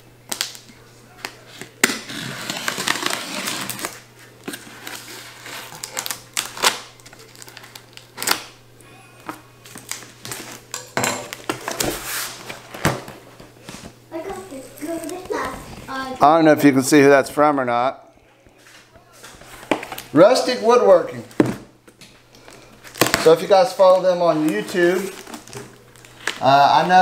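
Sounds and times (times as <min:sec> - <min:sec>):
packing tape ripping: 0:01.6 - 0:08.6, 0:22.8 - 0:23.4, 0:24.4 - 0:26.8
cardboard rustling and scraping: 0:02.0 - 0:06.1, 0:11.5 - 0:16.1, 0:22.9 - 0:27.0.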